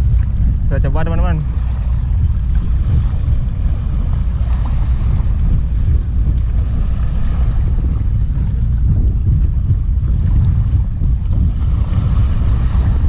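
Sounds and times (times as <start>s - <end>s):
waves washing over rocks: 0.0s - 13.0s
wind buffeting microphone: 0.0s - 13.0s.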